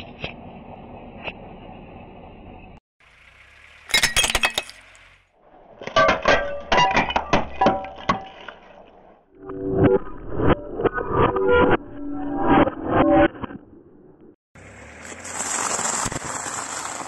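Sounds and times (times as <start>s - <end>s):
shards crunching and clinking: 3.9s - 4.9s.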